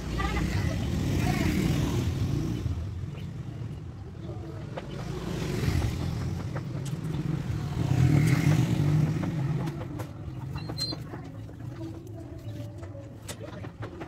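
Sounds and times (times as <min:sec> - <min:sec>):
vehicle passing close by: 0:04.9 - 0:10.4.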